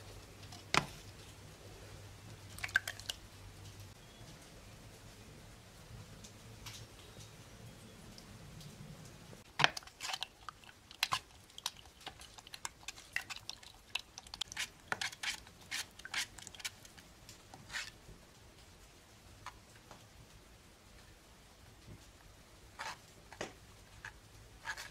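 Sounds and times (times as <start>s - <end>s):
wooden spoon scraping through sieve: 9.8s - 18.0s.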